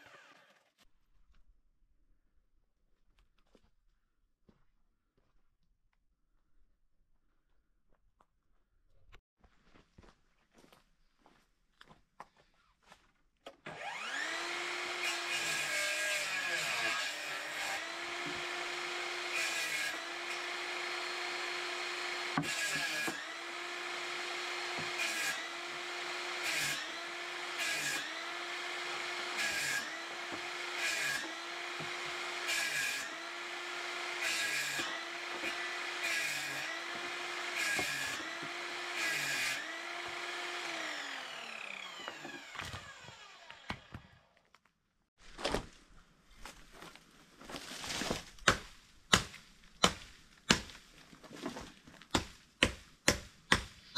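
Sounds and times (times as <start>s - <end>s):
saw winding down: 0.0s - 0.6s, 13.7s - 43.9s
saw cutting wood: 0.0s - 0.8s, 13.6s - 44.2s
table saw motor whine: 13.7s - 43.9s.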